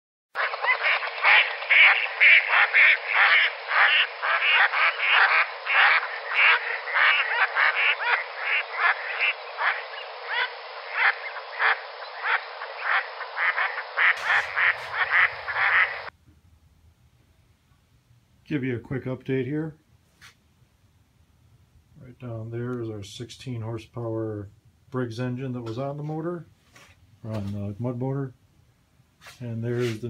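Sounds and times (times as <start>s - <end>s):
ducks quacking: 0.4s - 16.1s.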